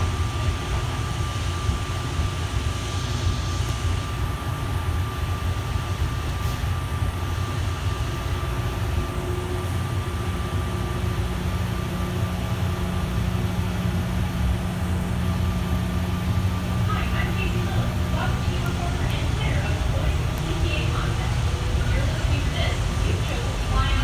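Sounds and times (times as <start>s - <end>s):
high whine: 0.0s - 24.0s
low steady hum: 0.0s - 24.0s
tyres rumbling: 8.3s - 24.0s.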